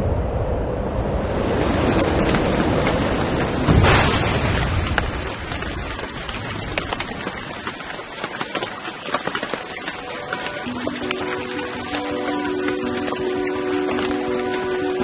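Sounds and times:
thunder clap: 0.0 - 9.3
steady rain: 0.7 - 15.0
raindrops ticking: 1.7 - 15.0.

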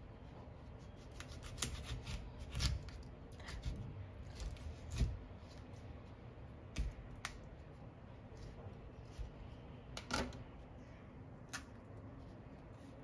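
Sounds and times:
knife cutting fruit: 0.7 - 5.8.

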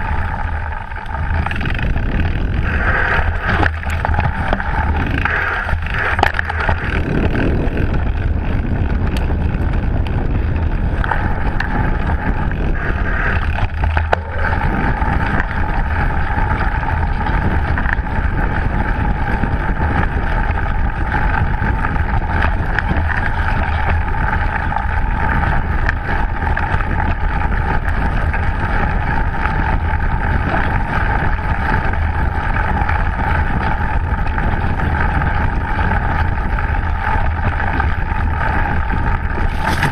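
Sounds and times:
tyres rumbling on dirt trail: 0.0 - 39.9
wind on microphone: 0.0 - 39.9
bike knocking over bumps: 13.4 - 18.1, 39.0 - 39.9.

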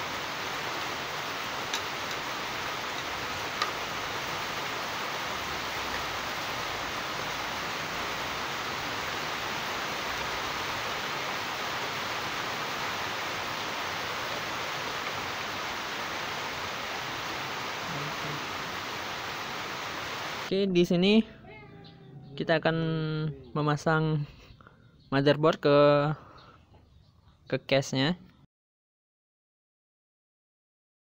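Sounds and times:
steady hiss: 0.0 - 20.5.

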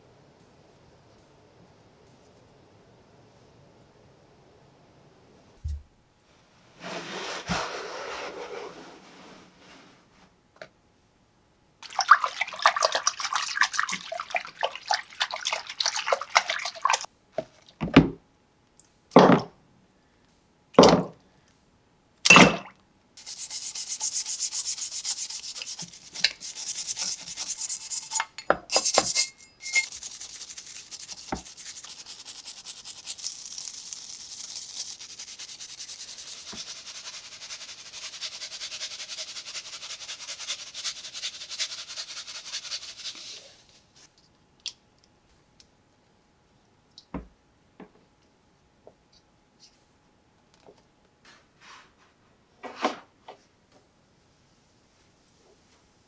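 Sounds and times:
stiff brush scrubbing in water: 11.8 - 17.1, 23.2 - 28.2, 29.1 - 43.3
water filling a bin: 11.8 - 17.1.

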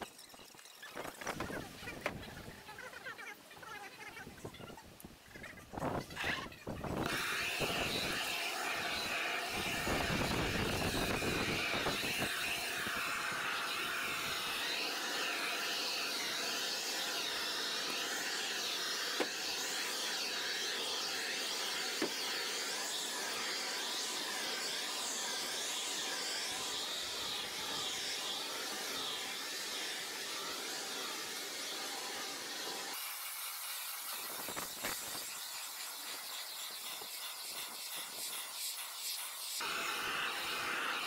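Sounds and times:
heat gun roaring: 7.0 - 33.2, 39.6 - 41.0.

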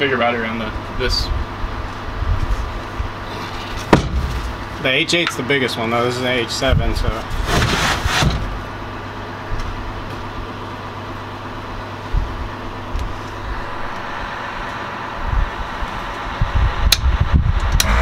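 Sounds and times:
low mechanical hum: 0.0 - 18.0
handling knocks: 3.8 - 4.6.

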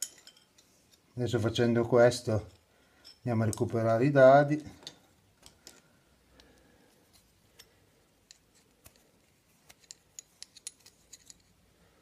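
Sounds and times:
metallic spanner clicks: 9.7 - 11.6.

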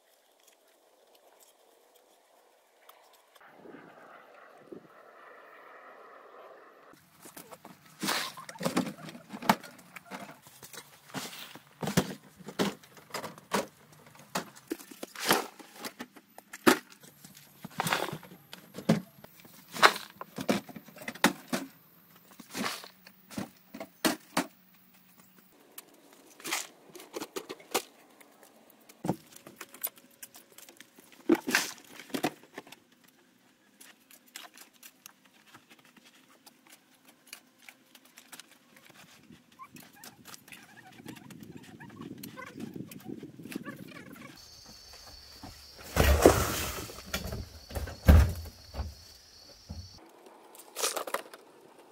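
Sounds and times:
hand tool scraping soil and stones: 7.2 - 12.8, 19.4 - 20.6, 22.2 - 23.6, 44.4 - 47.8.

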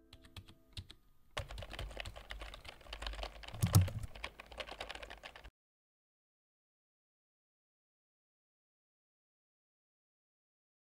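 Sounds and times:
rapid irregular clicks and taps: 0.2 - 5.5.

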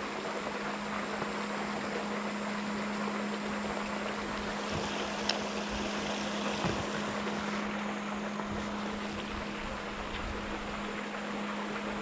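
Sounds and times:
constant low hum: 0.0 - 12.0
running water: 0.0 - 12.0.

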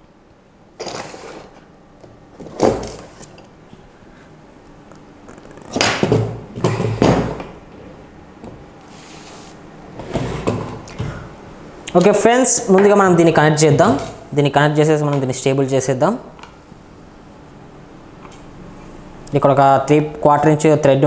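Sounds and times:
items scraping and knocking: 0.8 - 3.5, 8.9 - 11.2.

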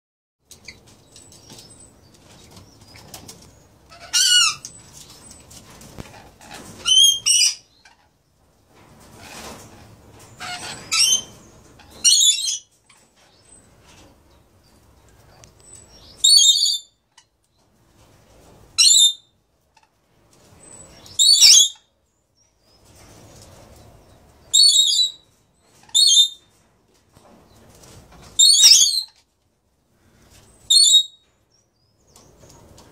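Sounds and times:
low background noise: 0.4 - 32.9
parrots screeching: 3.9 - 4.6, 6.8 - 7.6, 10.4 - 11.3, 21.2 - 21.8, 28.4 - 29.1.

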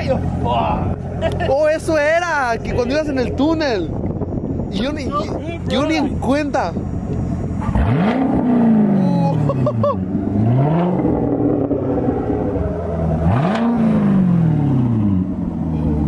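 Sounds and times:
car engine revving: 5.6 - 16.0.

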